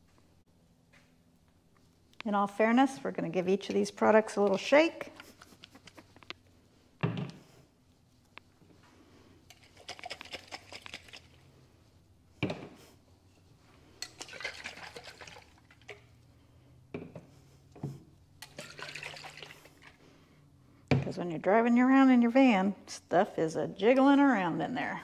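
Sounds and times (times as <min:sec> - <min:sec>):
water sloshing in shaken jars: 0:09.5 - 0:11.5, 0:14.0 - 0:16.1, 0:18.4 - 0:20.0.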